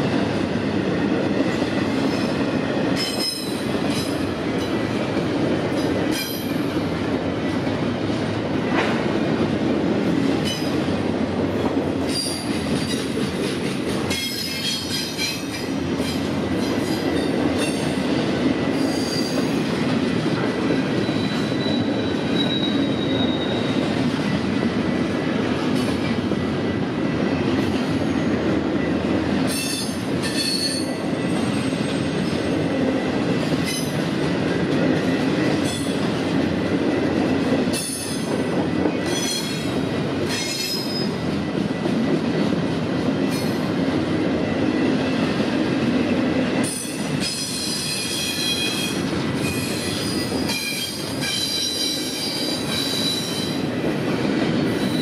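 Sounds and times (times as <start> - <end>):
freight train wheels rumbling: 0.0 - 55.0
high-pitched wheel squeal: 21.0 - 23.7.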